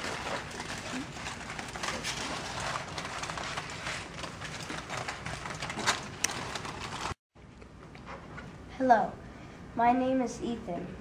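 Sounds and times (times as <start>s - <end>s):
aluminium foil crinkling: 0.0s - 7.2s.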